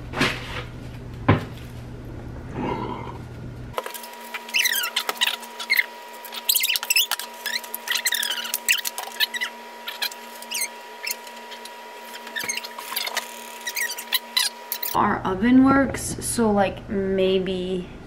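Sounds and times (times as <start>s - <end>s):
high-pitched squeaky chatter: 4.5s - 15.0s.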